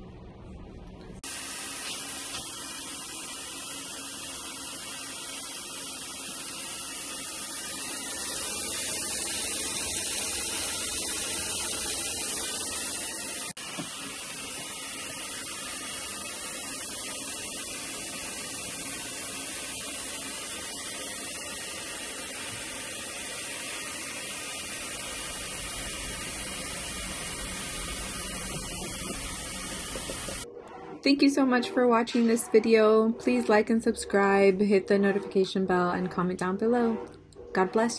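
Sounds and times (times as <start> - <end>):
water spraying into washing machine: 1.2 - 30.4.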